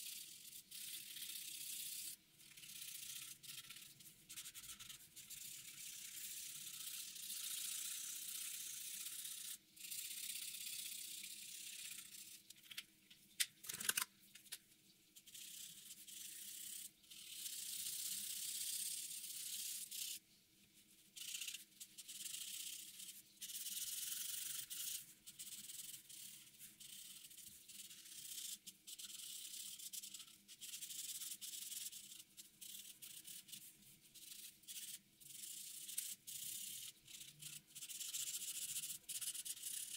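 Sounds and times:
marker scratching on paper: 0:00.6 - 0:12.5, 0:21.2 - 0:39.9.

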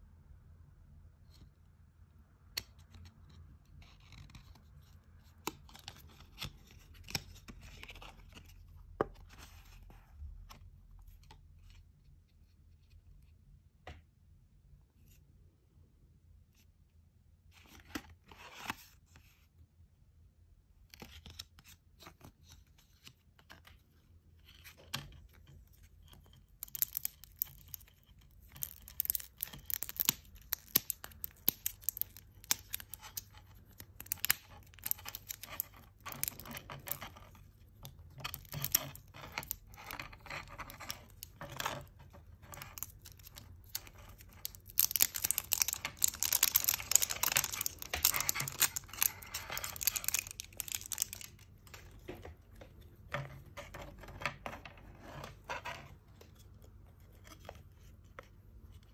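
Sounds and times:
plastic film crinkling: 0:26.6 - 0:37.1, 0:42.5 - 0:52.1.

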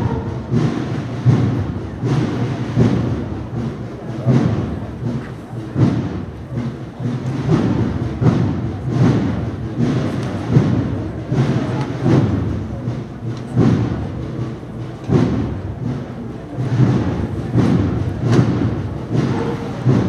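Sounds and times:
bass drum march beat: 0:00.0 - 0:20.0.

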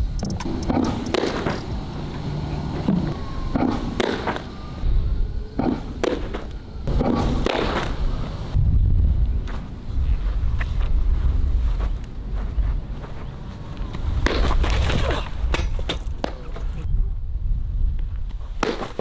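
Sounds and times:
baseball popping into mitt: 0:00.7 - 0:01.6, 0:03.5 - 0:04.5, 0:05.6 - 0:08.0, 0:14.2 - 0:16.4, 0:18.6 - 0:19.0
wind rumble on microphone: 0:06.6 - 0:19.0
cleats scuffing dirt: 0:09.4 - 0:16.8.

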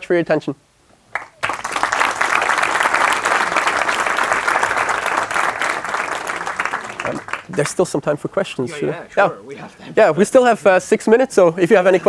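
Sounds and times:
audience applauding: 0:01.1 - 0:07.9.

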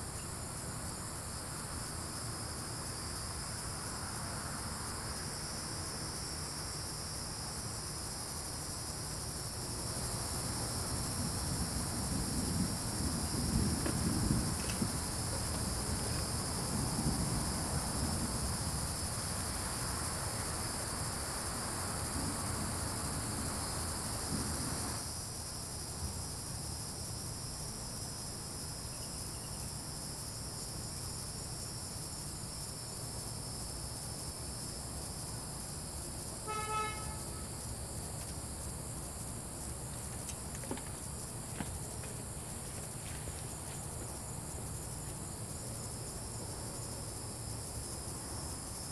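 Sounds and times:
crickets chirping: 0:00.0 - 0:48.9
car horn toot: 0:36.5 - 0:37.5.

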